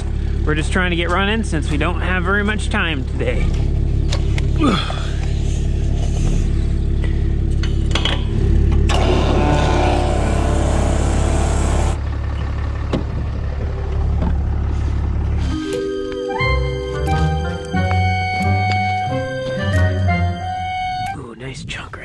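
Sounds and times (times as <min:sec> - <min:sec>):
motor humming: 0:08.3 - 0:12.0.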